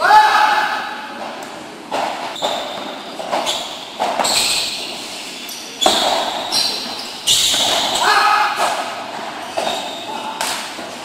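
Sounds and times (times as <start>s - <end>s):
ball bouncing off court and walls: 1.9s - 5.0s, 5.8s - 10.9s.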